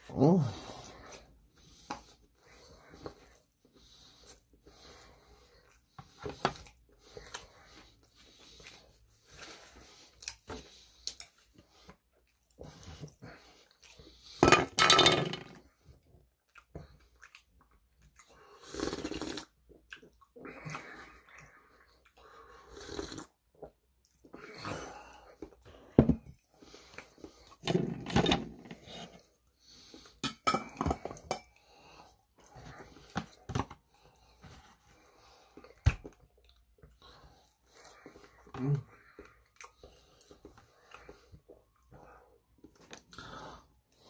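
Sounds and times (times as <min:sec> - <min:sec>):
chewing and wet clicks: 0:16.4 - 0:22.2, 0:39.2 - 0:41.9.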